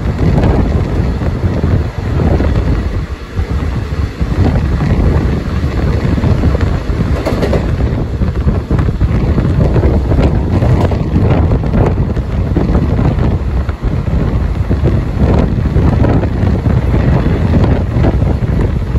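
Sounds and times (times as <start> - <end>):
passing train coaches: 0.0 - 18.9
train rumbling at speed: 0.0 - 18.9
wind buffeting microphone: 0.0 - 18.9
wheel clacks over rail joints: 4.2 - 12.4.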